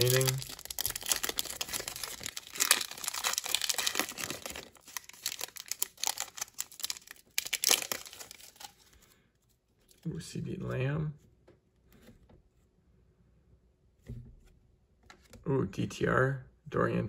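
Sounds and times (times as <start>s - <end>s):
foil wrapper crinkling and tearing: 0.0s - 9.0s.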